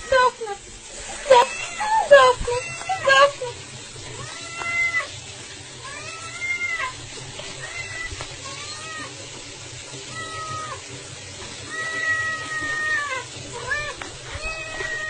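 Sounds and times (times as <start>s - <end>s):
kitten meowing: 11.7s - 15.0s.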